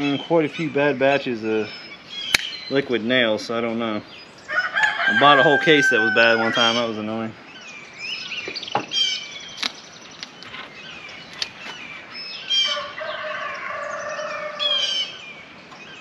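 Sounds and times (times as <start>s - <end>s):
small birds chirping: 0.0s - 16.0s
sharp clicks: 2.3s - 2.6s, 9.6s - 11.8s
drawn-out chicken call: 4.5s - 7.0s, 10.3s - 15.2s.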